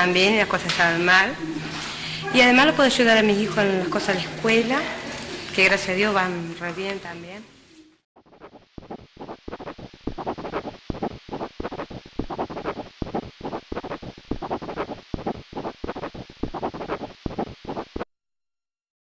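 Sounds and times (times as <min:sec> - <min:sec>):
chalk scratching on chalkboard: 0:08.2 - 0:18.0.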